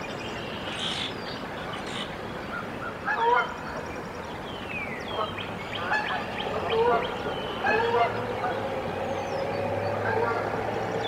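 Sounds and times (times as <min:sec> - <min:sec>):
goslings chirping: 0:05.1 - 0:08.6.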